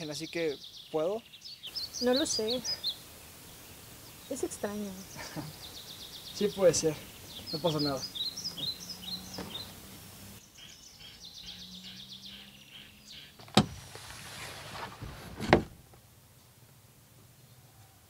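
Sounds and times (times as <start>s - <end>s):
birds chirping: 0.0s - 14.1s
sharp thumps: 13.4s - 16.0s.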